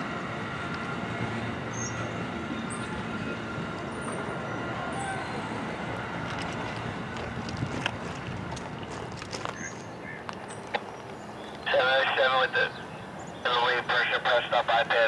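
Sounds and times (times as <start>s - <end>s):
train wheels rumbling on track: 0.0s - 11.6s.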